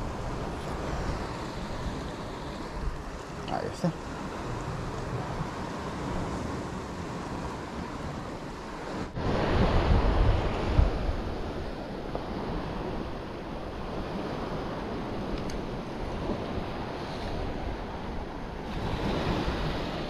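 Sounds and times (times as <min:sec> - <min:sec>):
waves washing on rocky shore: 0:00.0 - 0:20.0
wind on microphone: 0:00.0 - 0:20.0.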